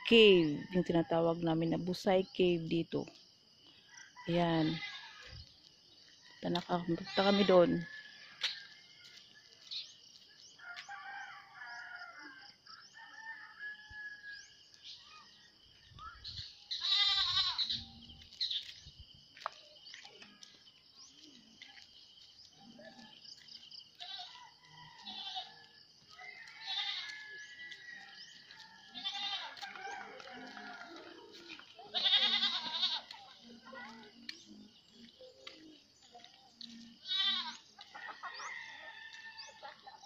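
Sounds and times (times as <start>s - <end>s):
goats bleating: 16.7s - 17.8s, 25.0s - 25.6s, 26.6s - 27.2s, 28.9s - 29.8s, 30.4s - 33.2s, 37.0s - 37.6s.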